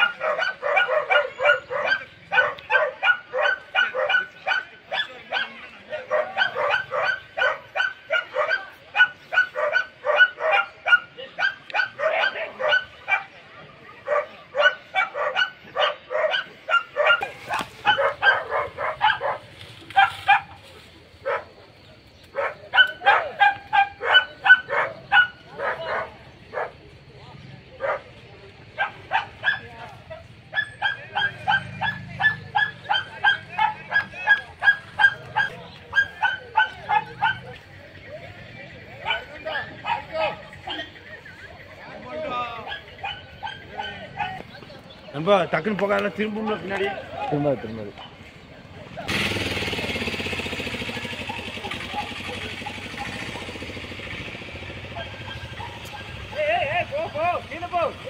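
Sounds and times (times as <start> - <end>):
dog barking rapidly: 0.0 - 20.6, 21.2 - 21.6, 22.3 - 26.8, 27.8 - 37.7, 38.8 - 41.4, 42.3 - 44.5, 48.9 - 58.0.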